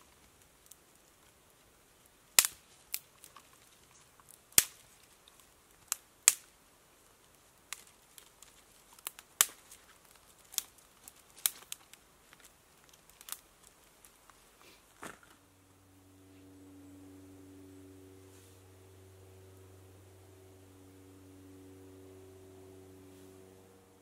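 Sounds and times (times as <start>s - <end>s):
twigs snapping: 2.3s - 6.5s, 7.3s - 14.4s.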